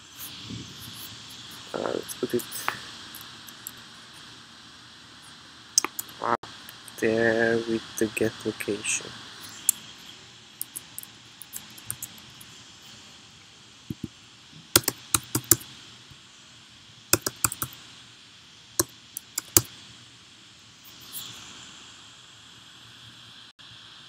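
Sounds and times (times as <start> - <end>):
keyboard keys clicking: 10.6 - 12.4, 14.7 - 15.6, 17.2 - 17.8, 18.8 - 19.7.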